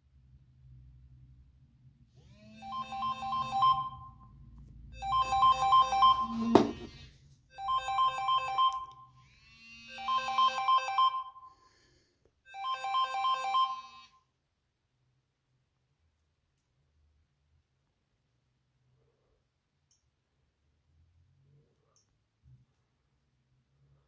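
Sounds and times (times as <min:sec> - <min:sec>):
electronic alarm tune: 0:02.4 - 0:04.4, 0:05.0 - 0:11.6, 0:12.5 - 0:14.2
sharp knock: 0:06.5 - 0:06.9.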